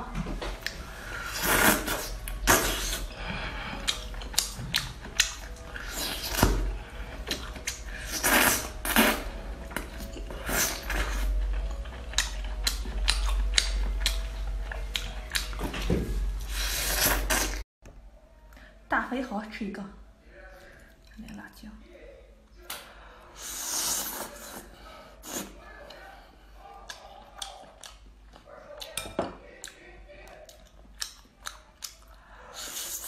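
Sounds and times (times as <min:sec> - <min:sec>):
steady low hum: 0:00.0 - 0:17.3
mouth smacking and chewing: 0:03.8 - 0:06.6, 0:07.2 - 0:15.6, 0:26.8 - 0:33.0.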